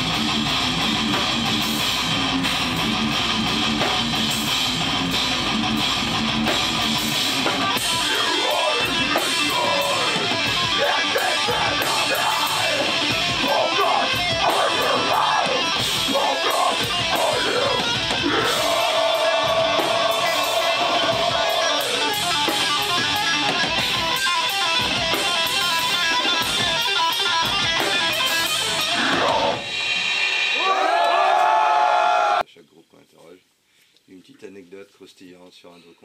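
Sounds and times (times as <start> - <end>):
distorted electric guitar: 0.0 - 32.4
drums: 0.0 - 32.4
vocalist shouting into microphone: 8.0 - 22.0.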